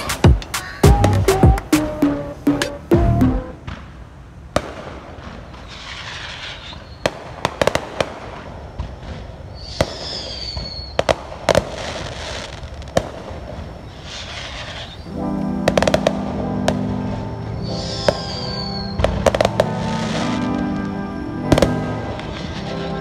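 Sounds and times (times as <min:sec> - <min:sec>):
fireworks bangs and crackling: 0:00.0 - 0:23.0
firework whistle: 0:04.6 - 0:23.0.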